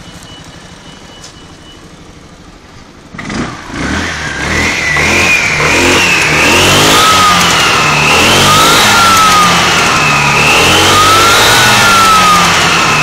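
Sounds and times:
scooter engine revving: 0:03.1 - 0:13.0.

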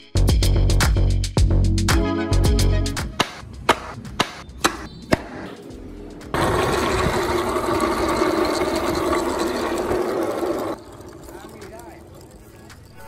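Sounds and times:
tyres rolling on concrete: 0:06.3 - 0:13.0.

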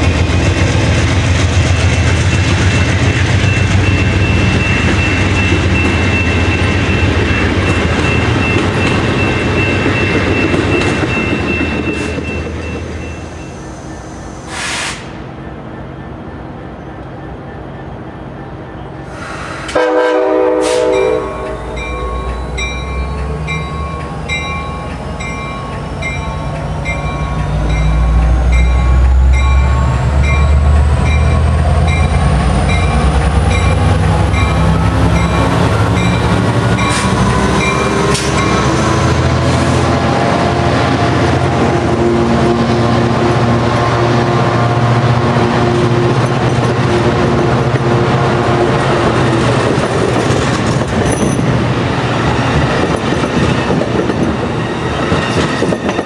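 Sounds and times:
train wheel and rail noise: 0:00.0 - 0:56.0
high ringing tone: 0:03.3 - 0:14.5, 0:20.9 - 0:37.0
locomotive rumble: 0:18.2 - 0:56.0
locomotive horn blast: 0:19.2 - 0:21.5.

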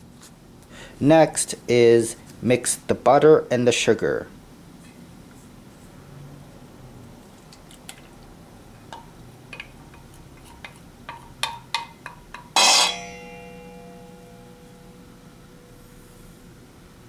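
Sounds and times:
knock on ringing steel bowl: 0:11.5 - 0:15.0.

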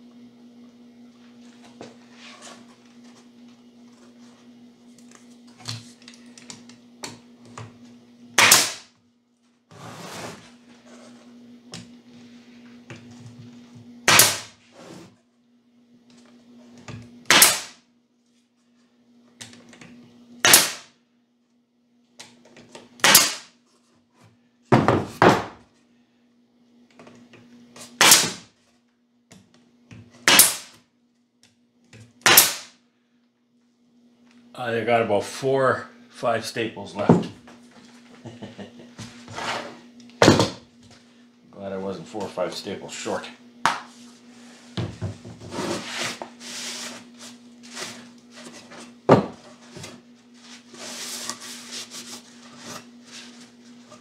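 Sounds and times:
steady low hum: 0:00.0 - 0:54.0
pneumatic stapler shots: 0:08.4 - 0:08.9, 0:14.0 - 0:14.6, 0:17.3 - 0:17.8, 0:20.4 - 0:20.9, 0:23.0 - 0:23.5, 0:28.0 - 0:28.5, 0:30.2 - 0:30.8, 0:32.2 - 0:32.7.

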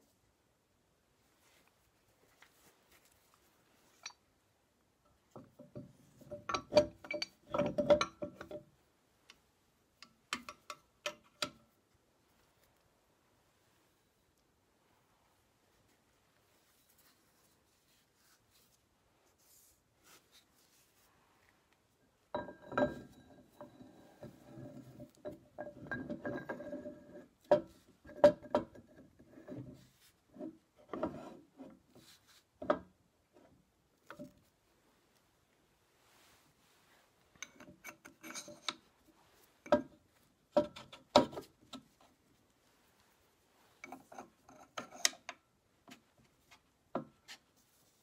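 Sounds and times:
metal parts clinking and knocking: 0:05.4 - 0:08.7, 0:37.4 - 0:38.8.

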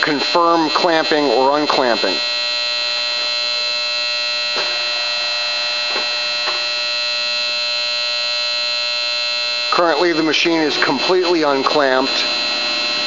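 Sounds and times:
drill press high whine: 0:00.0 - 0:13.0.

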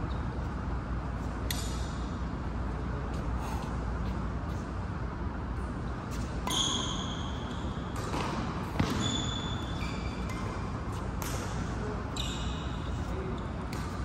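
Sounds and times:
racket hitting shuttlecock: 0:07.9 - 0:11.8.

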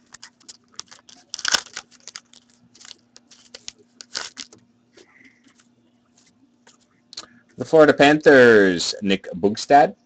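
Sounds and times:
foil wrapper tearing and crinkling: 0:00.0 - 0:04.6.

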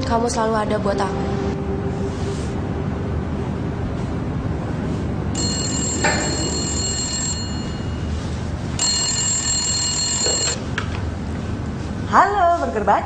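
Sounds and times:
low background hum: 0:00.0 - 0:13.0
desk telephone ringing: 0:05.4 - 0:08.2, 0:08.8 - 0:10.6.

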